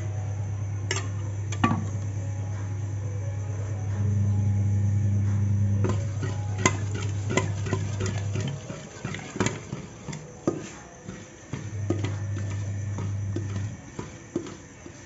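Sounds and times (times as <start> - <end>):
steady low hum: 0.0 - 15.0
ladle scraping metal pot: 5.8 - 15.0.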